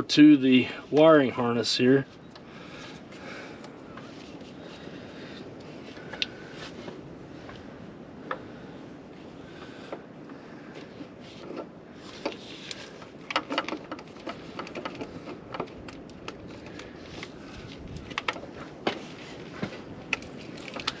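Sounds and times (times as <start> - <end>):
steady background hiss: 0.0 - 21.0
fuel pump clicks and knocks: 11.5 - 16.0.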